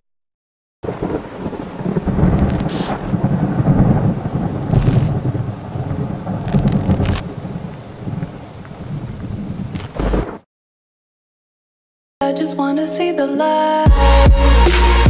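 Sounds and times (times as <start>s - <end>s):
thunder rumbling: 0.8s - 10.4s
rain hiss: 0.9s - 10.2s.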